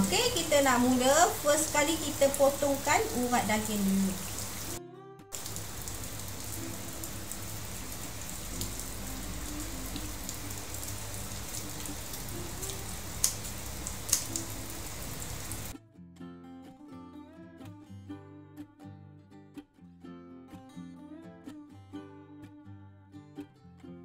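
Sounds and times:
steady background hiss: 0.0 - 4.8, 5.4 - 15.7.

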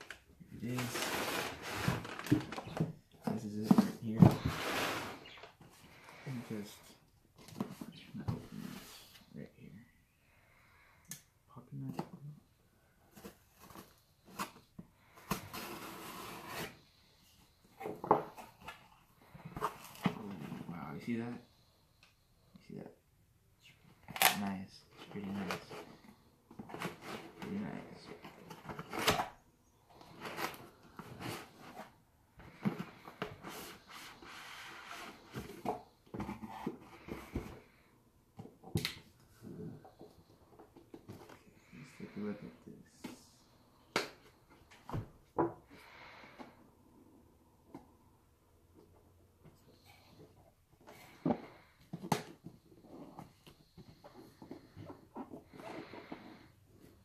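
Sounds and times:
cardboard rubbing and scraping: 3.6 - 5.3.

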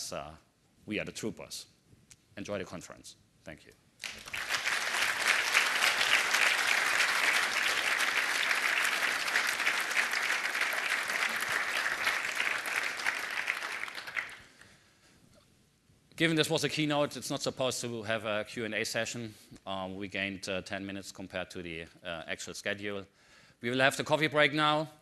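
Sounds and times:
audience applauding: 4.0 - 14.5.

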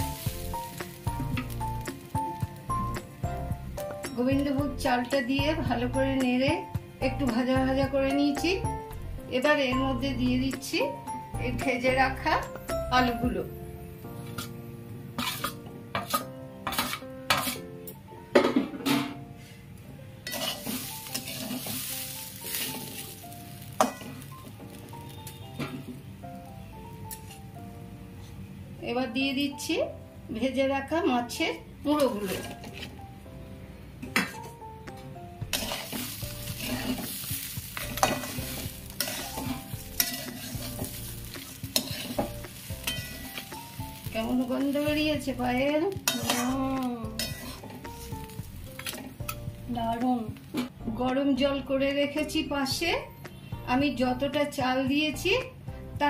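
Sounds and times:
light sizzle: 0.0 - 13.4, 20.2 - 28.4, 31.9 - 33.0, 34.9 - 51.2
spatula scraping rice in wok: 15.2 - 17.7, 20.2 - 24.8, 32.0 - 33.0, 35.5 - 45.4, 46.0 - 46.6, 47.2 - 49.0.

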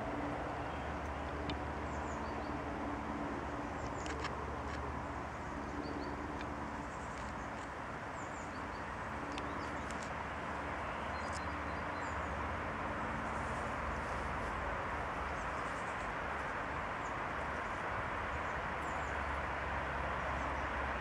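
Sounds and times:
small birds chirping: 5.3 - 12.4.

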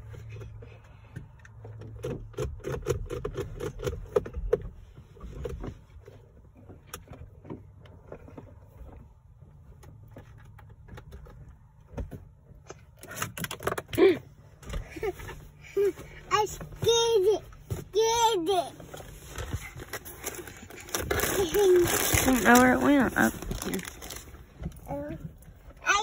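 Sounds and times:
light clicks and knocks of controls: 0.0 - 26.0.

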